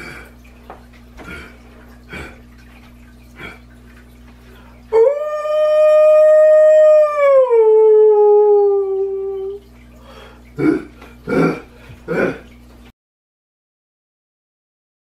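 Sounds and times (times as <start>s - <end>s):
man howling like a wolf: 4.9s - 9.6s.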